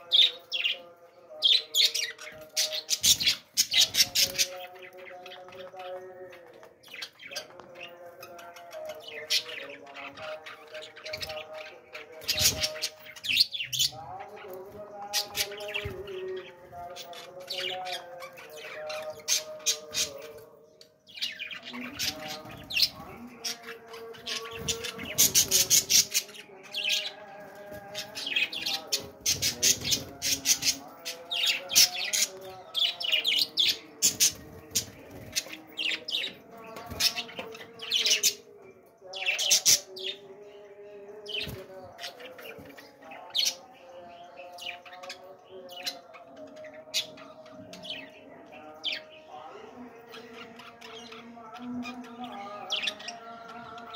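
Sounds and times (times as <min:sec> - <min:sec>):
budgerigars chattering: 0:27.9 - 0:38.5.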